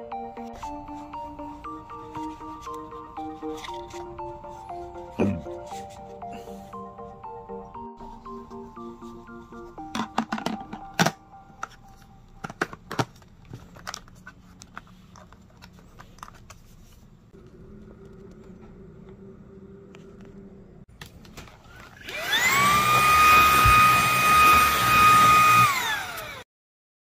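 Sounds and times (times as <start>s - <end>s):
plastic clicks and knocks: 9.9s - 11.8s
vacuum motor whine: 21.7s - 26.4s.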